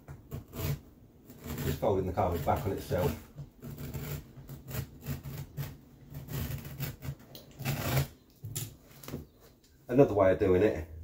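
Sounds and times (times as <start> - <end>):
knife cutting carpet: 0.3 - 8.1.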